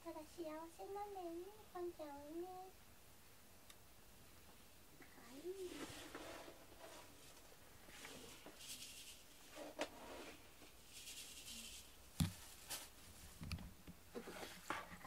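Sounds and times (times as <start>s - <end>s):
cat fur rustling: 5.3s - 13.4s.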